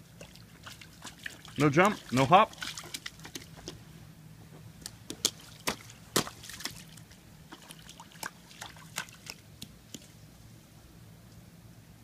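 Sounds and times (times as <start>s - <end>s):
rain boots splashing in puddle: 0.2s - 3.8s, 5.2s - 9.4s.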